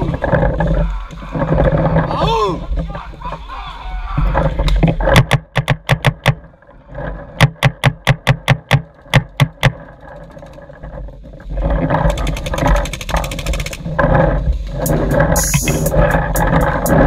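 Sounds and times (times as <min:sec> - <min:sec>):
rustling noise: 0:09.7 - 0:17.0
faint fast clicking: 0:11.9 - 0:14.1.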